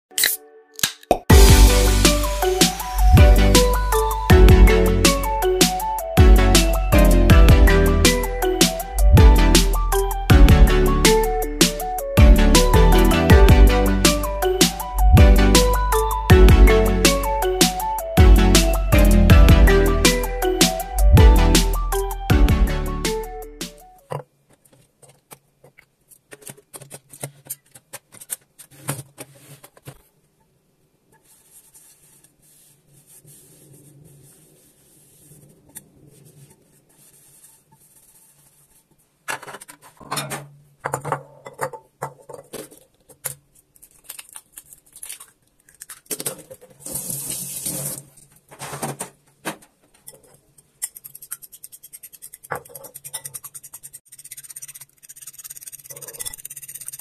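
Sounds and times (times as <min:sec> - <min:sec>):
clicks and knocks of handling: 0:24.1 - 0:30.1, 0:39.3 - 0:46.8.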